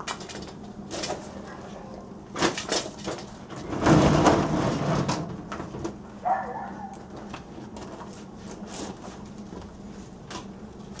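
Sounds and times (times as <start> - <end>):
loud rattling scrape: 2.4 - 5.4
objects knocking and clattering: 2.4 - 6.0.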